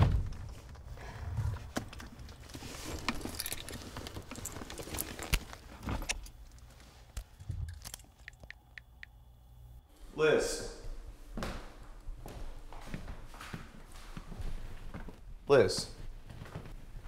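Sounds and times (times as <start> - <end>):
low steady hum: 0.1 - 13.3
keys jangling: 2.0 - 6.7.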